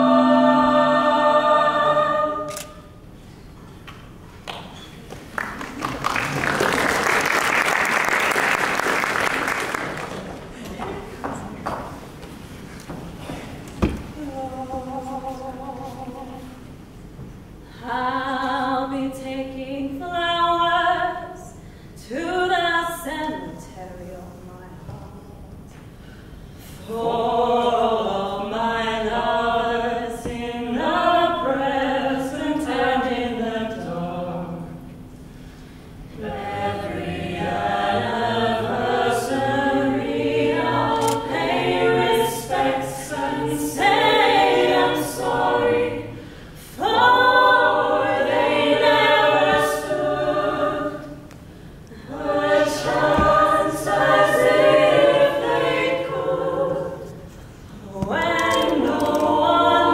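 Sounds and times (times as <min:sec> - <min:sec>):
a cappella group singing in harmony: 0:00.0 - 0:03.2, 0:13.2 - 0:17.0, 0:17.6 - 0:23.7, 0:25.9 - 0:59.9.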